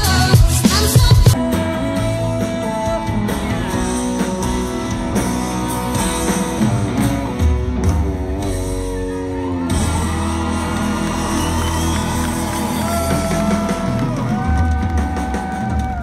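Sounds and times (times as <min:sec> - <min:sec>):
woman singing: 0:00.0 - 0:04.6
drums: 0:00.0 - 0:16.0
electric guitars: 0:00.0 - 0:16.0.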